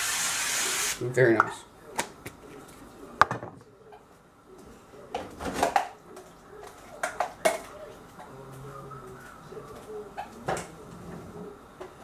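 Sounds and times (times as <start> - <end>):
kitchen knocks and rattles: 5.2 - 6.0.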